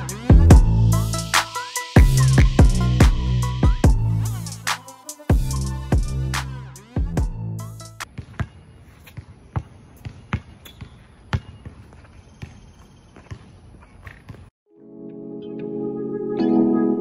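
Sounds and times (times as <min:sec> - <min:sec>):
background music: 0:00.0 - 0:08.0, 0:14.7 - 0:17.0
basketball bouncing on court: 0:08.0 - 0:14.5.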